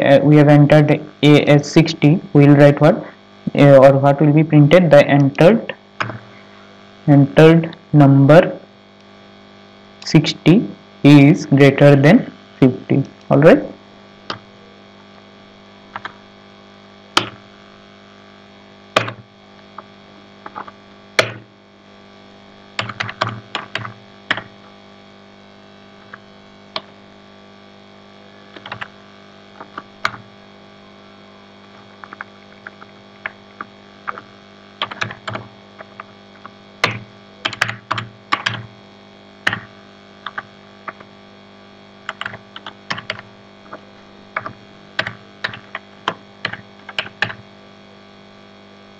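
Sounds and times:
steady low hum: 0.0s - 48.9s
typing on computer keyboard: 22.8s - 24.5s, 28.6s - 28.9s, 34.8s - 36.0s, 36.8s - 38.7s, 39.5s - 41.0s, 42.1s - 43.2s, 44.4s - 47.4s.

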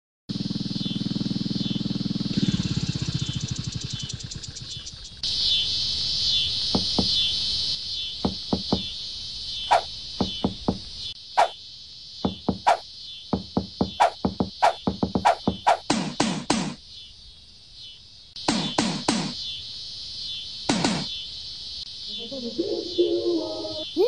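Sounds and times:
motorcycle engine chugging: 0.3s - 5.2s, 6.7s - 7.2s, 8.2s - 8.9s, 9.7s - 11.5s, 12.2s - 12.8s, 13.4s - 16.0s
insect chorus: 0.3s - 24.0s
hollow knocks on watermelons: 6.7s - 7.2s, 8.2s - 8.9s, 9.7s - 11.5s, 12.2s - 12.8s, 13.4s - 16.8s, 18.5s - 19.4s.

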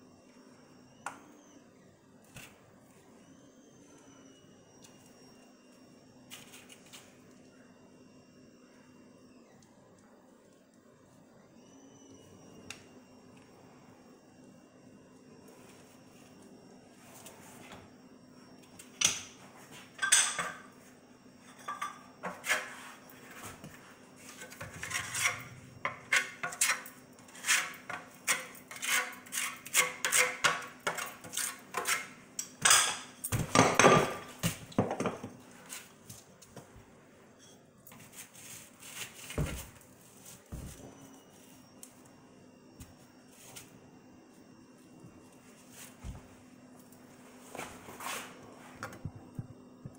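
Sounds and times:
metal trowel scraping tile: 24.3s - 32.2s.

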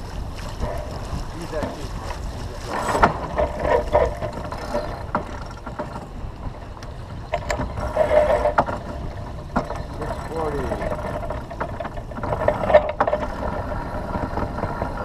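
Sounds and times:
wind rumbling on microphone: 0.0s - 15.0s
winch clicking: 6.8s - 15.0s.

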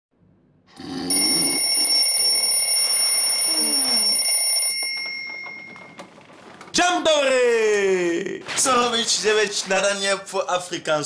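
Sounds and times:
bell-like ringing tones: 1.1s - 6.1s.

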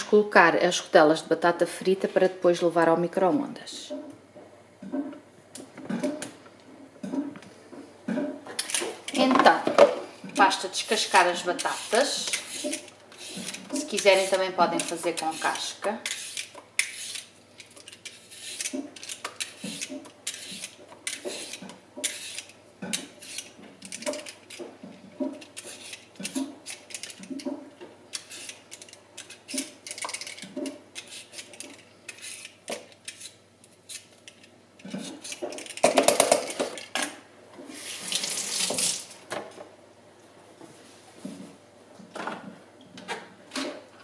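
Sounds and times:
peeler scraping potato skin: 10.4s - 24.6s, 25.3s - 27.4s, 28.1s - 35.8s.

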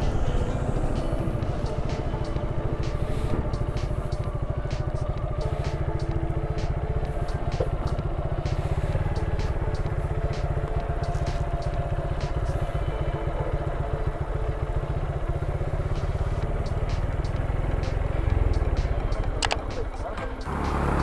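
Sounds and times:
motorcycle engine idling: 0.0s - 21.0s
light clicks: 19.2s - 20.2s.

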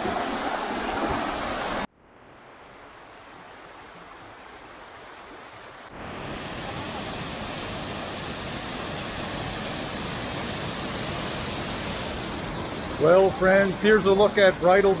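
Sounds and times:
water rushing in a creek: 0.0s - 15.0s
waterfall pouring into pool: 10.5s - 15.0s.

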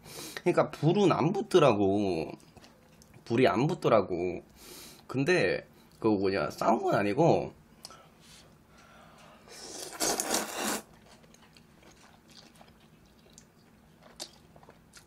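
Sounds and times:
quiet chewing with clicks: 2.3s - 3.3s, 10.9s - 15.0s
noodles slurped: 9.6s - 10.9s.

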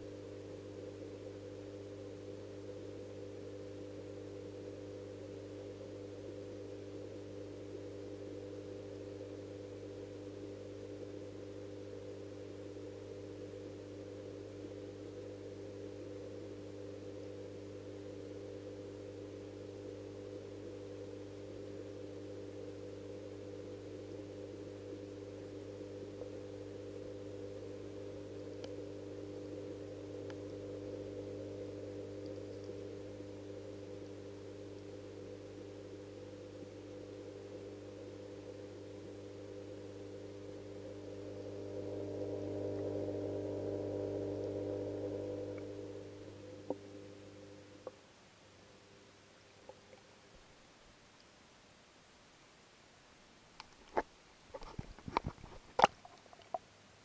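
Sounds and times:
pond pump humming underwater: 0.0s - 50.4s
faint ticks: 32.2s - 32.8s.

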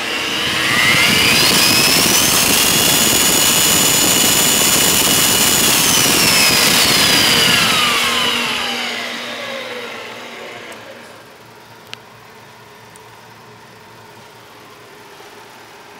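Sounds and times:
drill motor whine spinning down: 0.0s - 11.6s.

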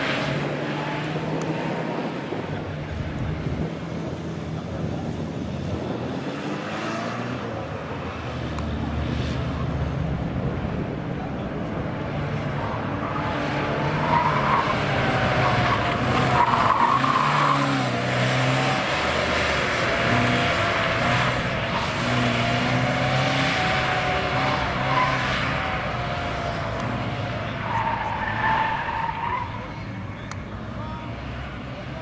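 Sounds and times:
car engine revving: 0.0s - 32.0s
tyres squealing: 12.4s - 20.0s, 27.3s - 30.3s.

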